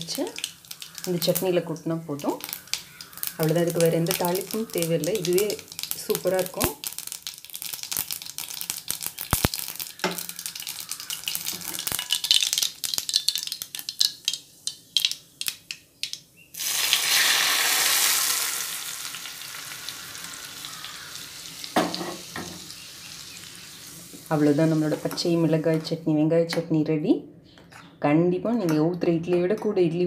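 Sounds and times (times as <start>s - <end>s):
hot oil hissing on food: 0.0s - 1.5s, 2.1s - 15.3s, 16.5s - 25.2s
mustard seeds popping in hot oil: 0.0s - 25.9s.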